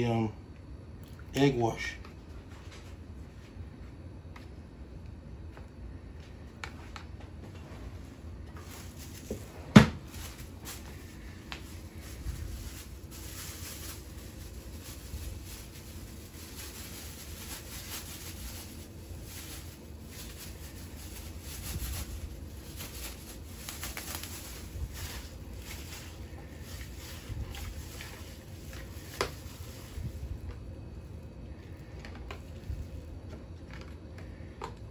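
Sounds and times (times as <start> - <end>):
kitchen handling sounds: 8.5 - 11.0.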